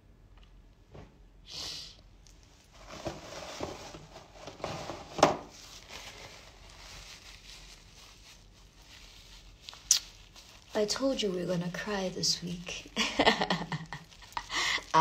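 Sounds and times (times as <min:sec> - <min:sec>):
woman sniffing: 0:01.5 - 0:02.0
paper tissue rustling: 0:02.5 - 0:15.0.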